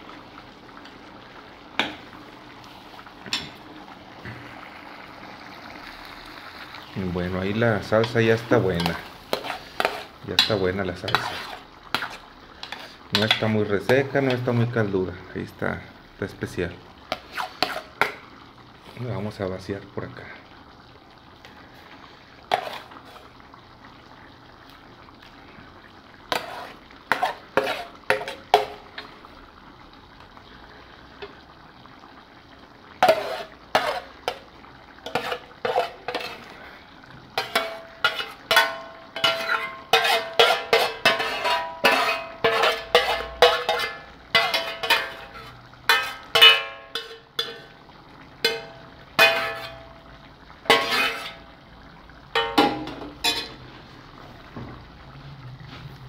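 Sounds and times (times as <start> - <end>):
spoon scraping metal pan: 7.8 - 14.5, 17.1 - 18.2, 22.5 - 23.3, 26.3 - 29.1, 33.0 - 36.6, 37.4 - 47.8, 48.4 - 50.0, 50.7 - 51.5, 52.4 - 53.6.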